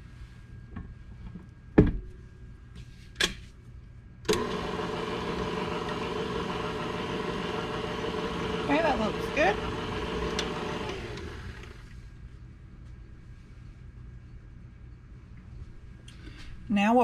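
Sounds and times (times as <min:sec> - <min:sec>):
stand mixer motor hum: 0:04.3 - 0:12.0.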